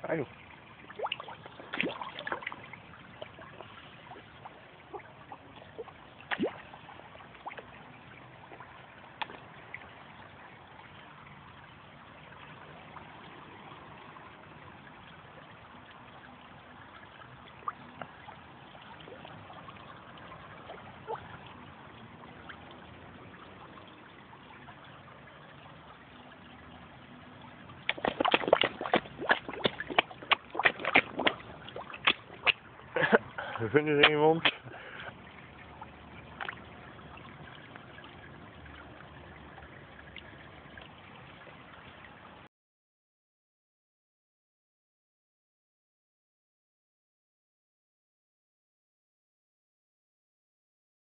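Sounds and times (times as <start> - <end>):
pond water lapping and trickling: 0.0 - 42.5
fish splashing: 0.8 - 9.5, 27.8 - 36.8.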